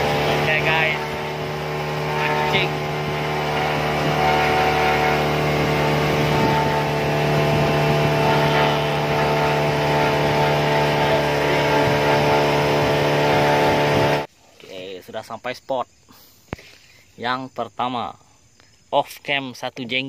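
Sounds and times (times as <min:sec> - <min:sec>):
boat motor humming: 0:00.0 - 0:14.3.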